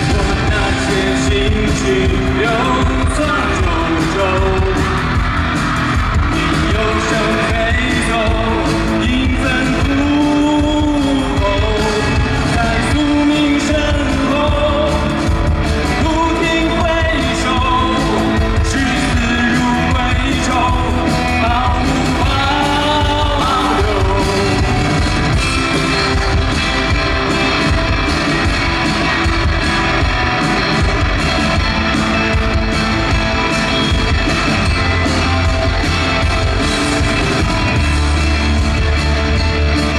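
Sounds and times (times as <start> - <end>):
man singing lead: 0.0 - 27.8
band playing guitar and drums: 0.0 - 39.9.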